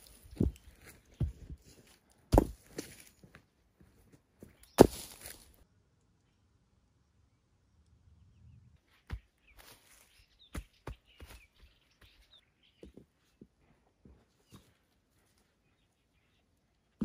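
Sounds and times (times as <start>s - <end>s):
stones shifting: 4.7s - 5.5s
faint bird chirps: 8.0s - 13.5s.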